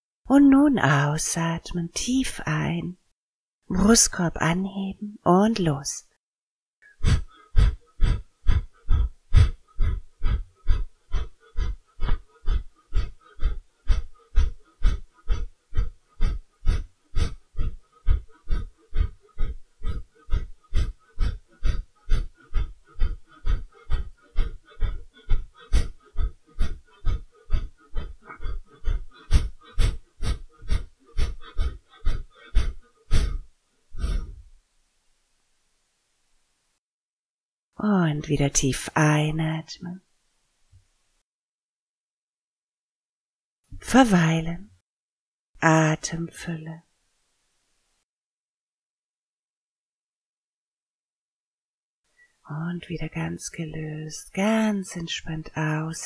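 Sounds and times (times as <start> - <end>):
woman forceful nasal exhalations: 6.8 - 34.5.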